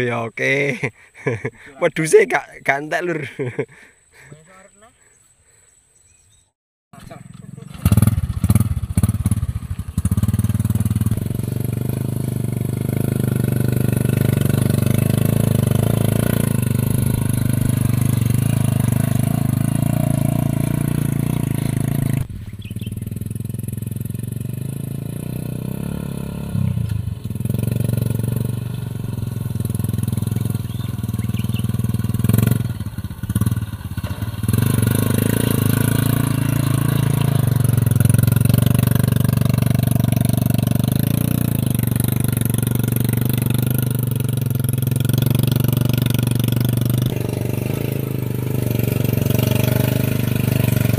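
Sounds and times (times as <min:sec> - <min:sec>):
motorcycle engine running: 0:07.0 - 0:50.9.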